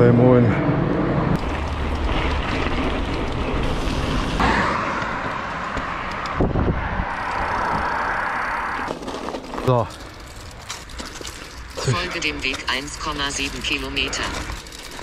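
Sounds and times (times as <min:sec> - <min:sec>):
bike tyres hissing on road: 0:01.4 - 0:05.6
wind over microphone: 0:05.1 - 0:08.8.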